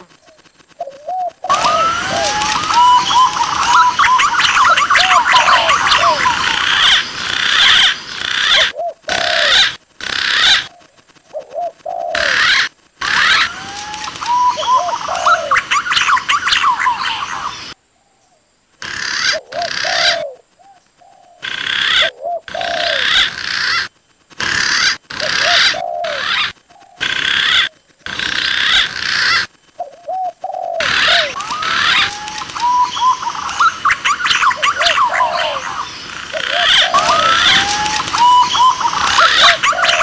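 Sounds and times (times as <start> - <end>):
doves cooing: 0.0 - 17.8, 18.8 - 40.0
pigeon calls: 0.0 - 17.8, 18.8 - 20.4, 21.1 - 40.0
birds chirping: 0.0 - 40.0.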